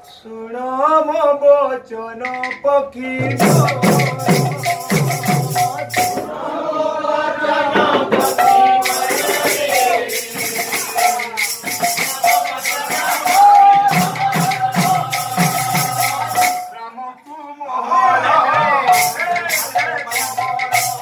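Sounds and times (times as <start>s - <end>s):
men singing devotional song: 0.0s - 16.7s, 17.7s - 21.0s
crisp high drum strokes: 3.2s - 6.4s, 7.8s - 16.8s, 18.9s - 21.0s.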